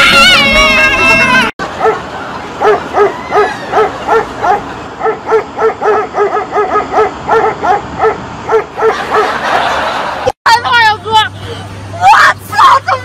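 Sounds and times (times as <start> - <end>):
dog barking in high barks: 1.8 - 2.0, 2.6 - 9.3.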